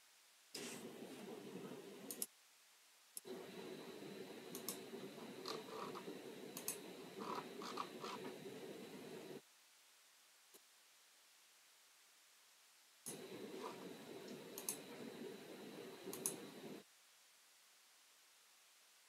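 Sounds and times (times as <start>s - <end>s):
low room hiss: 0.0s - 19.0s
computer mouse clicks: 2.1s - 2.3s, 4.5s - 6.0s, 6.6s - 8.3s, 14.3s - 14.8s, 16.1s - 16.4s.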